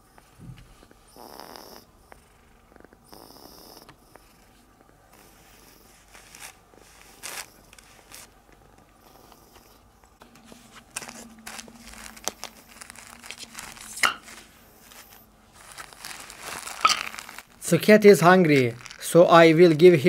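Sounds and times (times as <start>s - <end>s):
faint hum: 0.0s - 20.0s
plastic packaging crinkling: 6.0s - 8.4s, 10.3s - 20.0s.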